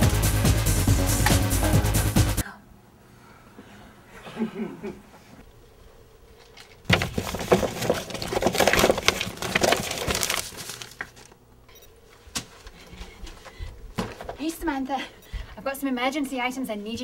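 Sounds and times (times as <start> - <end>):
papers rustling and crinkling: 6.4 - 11.4, 12.0 - 14.5.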